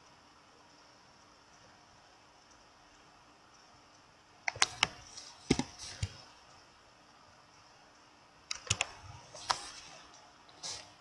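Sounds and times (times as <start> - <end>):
keyboard and mouse clicks: 3.5 - 6.6, 8.5 - 11.0.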